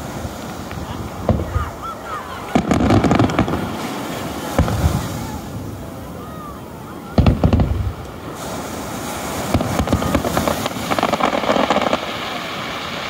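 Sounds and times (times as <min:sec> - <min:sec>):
crackling: 0:00.0 - 0:05.4, 0:09.4 - 0:13.0
surf washing onto beach: 0:00.0 - 0:13.0.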